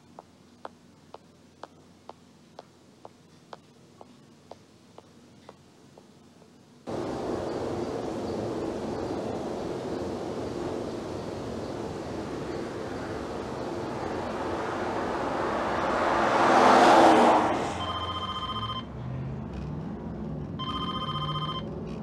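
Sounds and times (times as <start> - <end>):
road noise inside moving car: 6.8 - 22.0
mobile phone ringtone: 17.8 - 18.9, 20.6 - 21.7.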